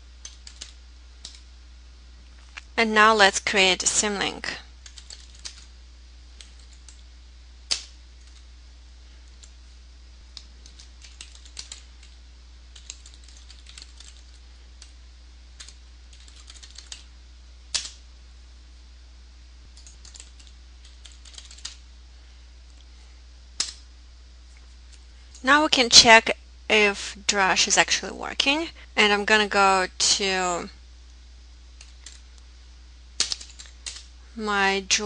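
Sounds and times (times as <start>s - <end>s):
steady low hum: 0.0s - 35.0s
typing on computer keyboard: 0.2s - 1.4s, 4.8s - 5.7s, 6.4s - 7.0s, 10.6s - 12.2s, 12.8s - 14.4s, 15.6s - 17.1s, 19.8s - 21.8s, 33.2s - 34.0s.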